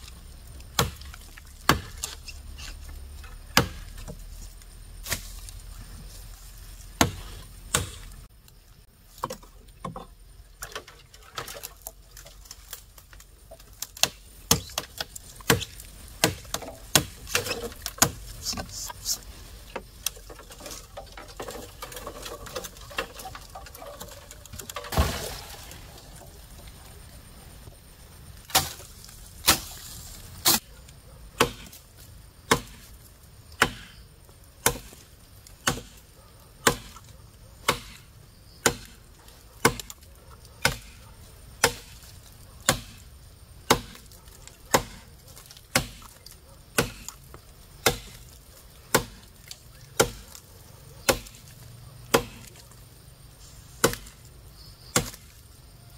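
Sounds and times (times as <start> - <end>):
chopping wood: 0.7 - 2.2, 3.2 - 4.3, 5.0 - 5.6, 7.0 - 8.2, 9.2 - 11.7, 12.6 - 18.9, 19.8 - 26.3, 28.4 - 29.8, 31.4 - 31.8, 32.4 - 32.9, 33.6 - 34.0, 34.6 - 36.0, 36.6 - 41.0, 41.6 - 52.6, 53.8 - 54.2, 54.9 - 55.3.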